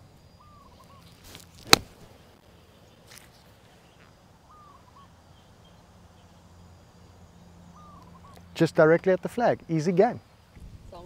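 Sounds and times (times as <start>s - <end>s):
golf club striking ball: 1.6s - 2.0s.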